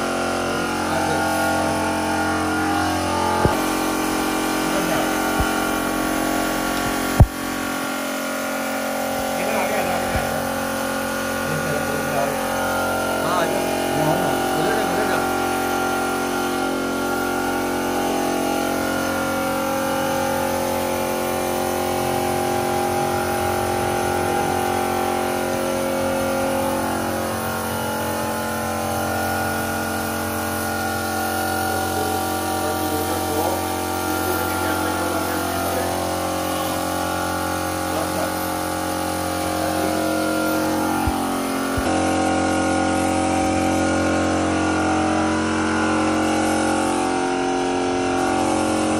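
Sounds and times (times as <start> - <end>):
machine motor humming: 0.0 - 48.9.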